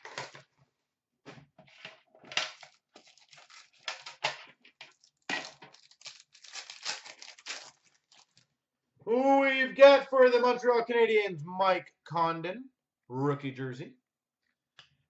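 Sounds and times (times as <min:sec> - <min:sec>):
plastic wrapper tearing and crinkling: 0:02.3 - 0:08.4.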